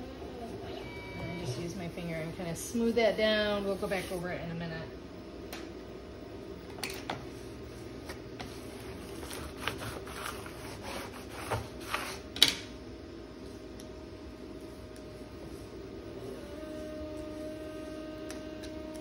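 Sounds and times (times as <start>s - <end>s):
steady low hum: 0.0s - 19.0s
vinyl stencil rustling and crinkling: 8.0s - 12.2s.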